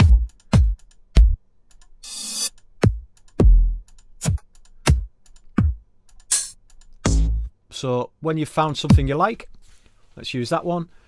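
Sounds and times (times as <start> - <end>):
electronic kick drum hits: 0.0 - 1.4, 4.9 - 5.8, 7.0 - 7.5, 8.9 - 9.1.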